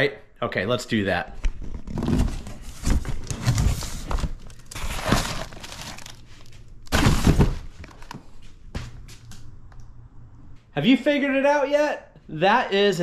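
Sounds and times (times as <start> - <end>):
cardboard and packing rustling: 1.6 - 8.5.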